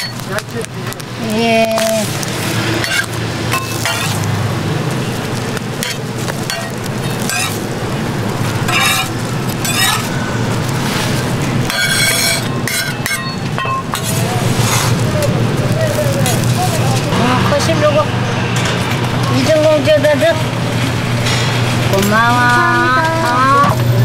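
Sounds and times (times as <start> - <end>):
metal spatula scraping griddle: 1.8 - 4.3, 5.8 - 7.7, 8.5 - 15.1.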